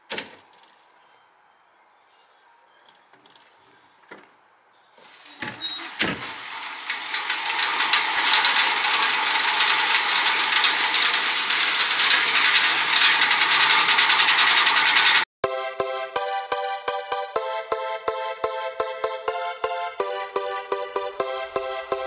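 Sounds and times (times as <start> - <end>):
machine ratcheting clatter: 5.1 - 15.3.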